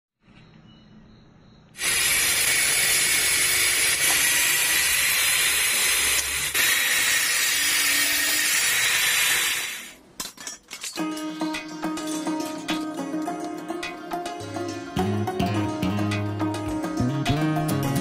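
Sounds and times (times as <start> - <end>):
electric drill boring into wood: 1.8 - 10.0.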